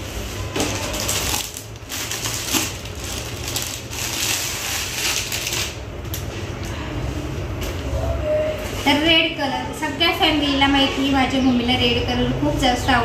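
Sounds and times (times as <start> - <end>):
fabric crinkling and rustling: 0.0 - 6.6.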